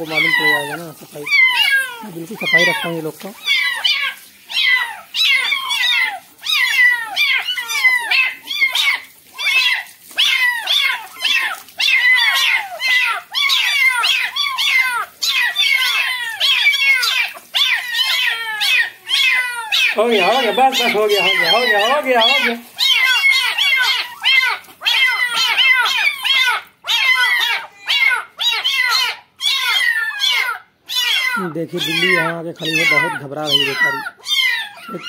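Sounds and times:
running water: 0.0s - 28.8s, 31.3s - 35.0s
kittens meowing: 0.0s - 35.0s.

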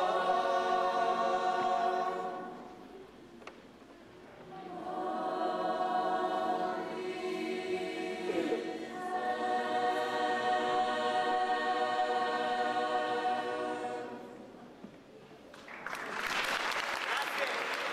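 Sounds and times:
choir singing a cappella: 0.0s - 3.1s, 4.4s - 14.7s
applause: 15.5s - 17.9s.

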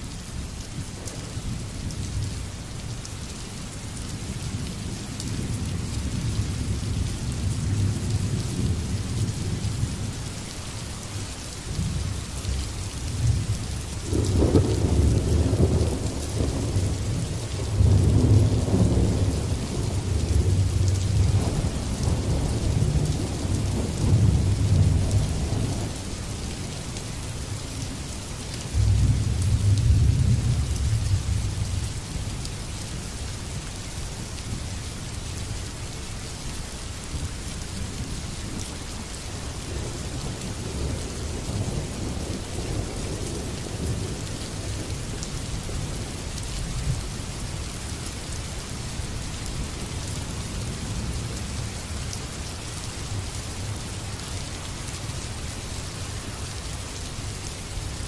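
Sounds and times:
steady rain: 0.0s - 58.0s
rolling thunder: 13.2s - 25.9s.

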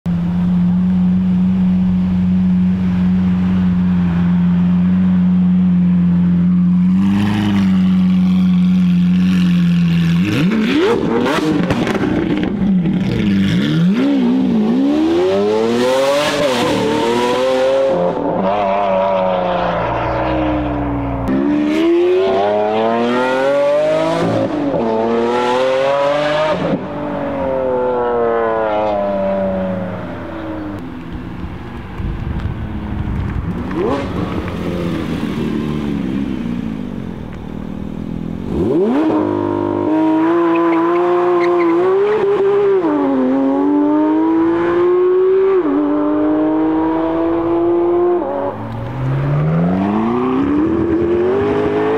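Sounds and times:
sports car engine revving: 6.4s - 31.0s, 33.1s - 51.9s.

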